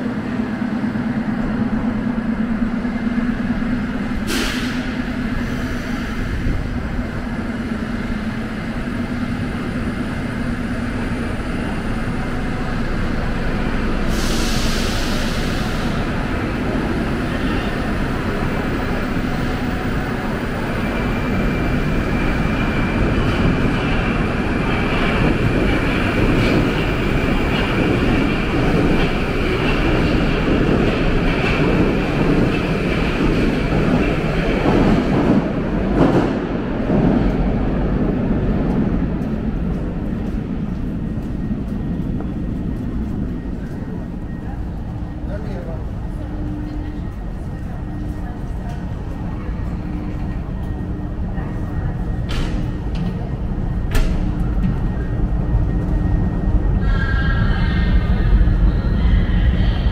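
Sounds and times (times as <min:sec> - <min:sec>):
train rumble: 0:00.0 - 0:59.9
hiss of air: 0:04.2 - 0:06.2, 0:14.0 - 0:16.0.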